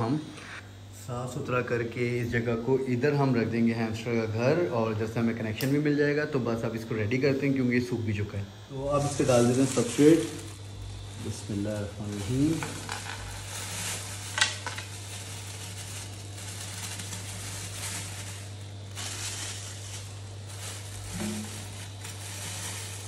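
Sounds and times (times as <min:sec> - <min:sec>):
bedding pouring hissing rustle: 0:08.8 - 0:23.0
plastic bag crinkling: 0:08.9 - 0:23.0.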